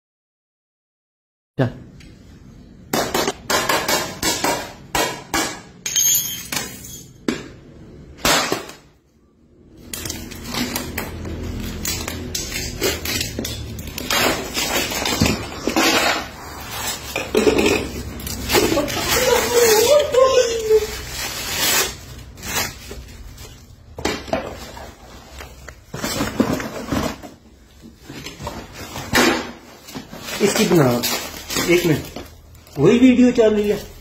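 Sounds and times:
shards scraping and crunching: 10.0s - 20.0s.

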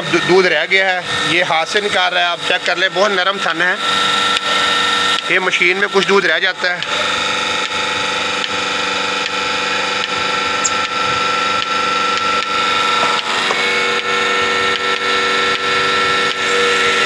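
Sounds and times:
milking machine motor hum: 0.0s - 17.0s
pulsator clicking: 4.1s - 5.3s, 5.9s - 16.6s.

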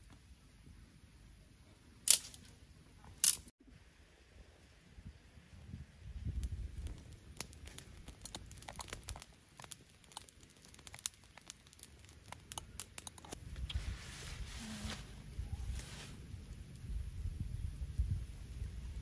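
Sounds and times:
leaves rustling: 2.0s - 2.6s, 6.2s - 17.3s
campfire crackling and popping: 6.0s - 13.9s, 15.2s - 19.0s.

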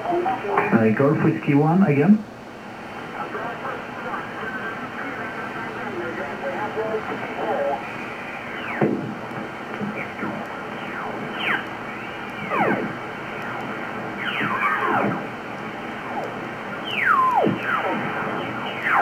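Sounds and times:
radio band noise hiss: 0.0s - 19.0s
radio whistling sweep: 7.7s - 8.9s, 9.9s - 19.0s.

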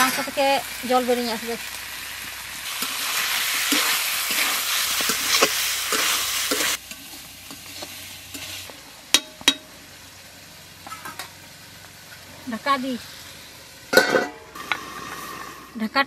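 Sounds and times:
meat sizzling in a pan: 0.0s - 15.9s
metal spatula scraping: 2.7s - 8.7s, 13.9s - 15.9s.

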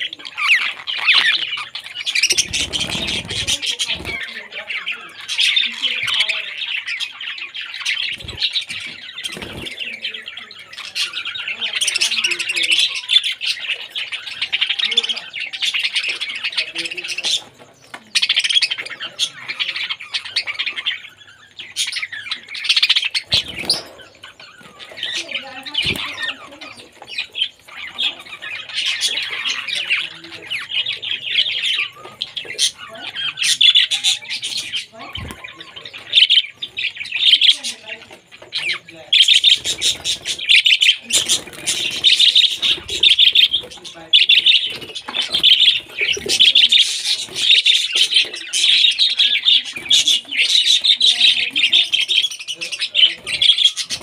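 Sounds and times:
budgerigars chattering and warbling: 0.0s - 54.0s.

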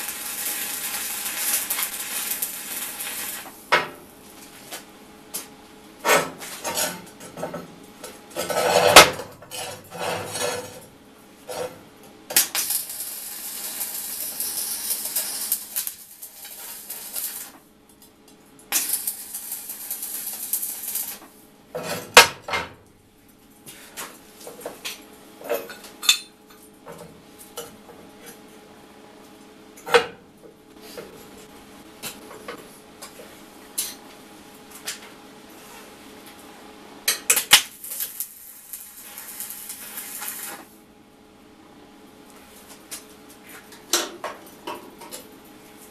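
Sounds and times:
arc welding hissing and crackling: 0.0s - 17.7s, 18.6s - 22.4s, 37.1s - 40.8s.

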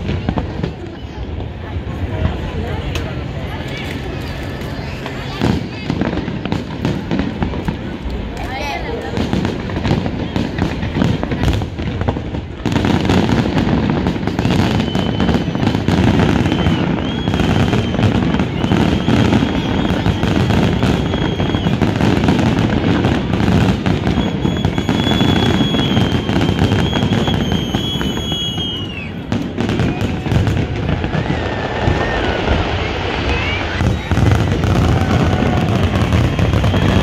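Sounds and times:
fireworks bursting and crackling: 0.0s - 37.0s
high firework whistles: 8.4s - 37.0s.

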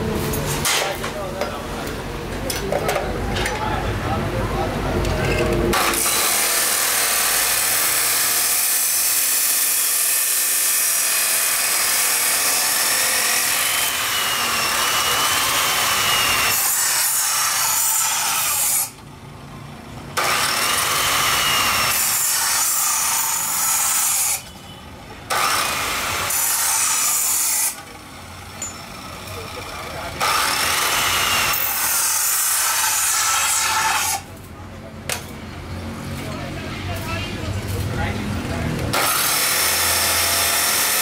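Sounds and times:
cut-off saw grinding steel: 5.3s - 19.0s, 20.2s - 34.4s, 38.9s - 41.0s.

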